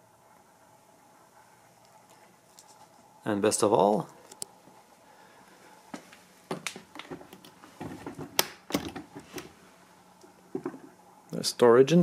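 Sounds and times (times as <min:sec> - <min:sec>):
suitcase latch clicks and knocks: 0:08.2 - 0:09.1.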